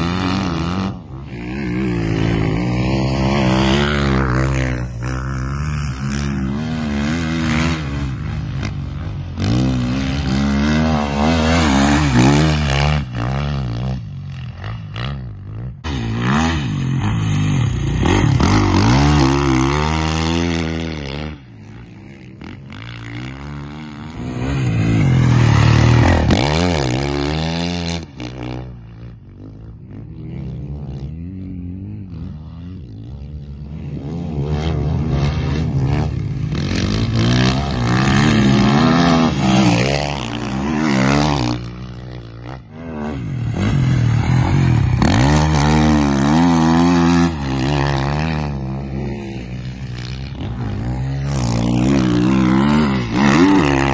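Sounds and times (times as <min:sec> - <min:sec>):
dirt bike engine revving: 0:00.0 - 0:53.9.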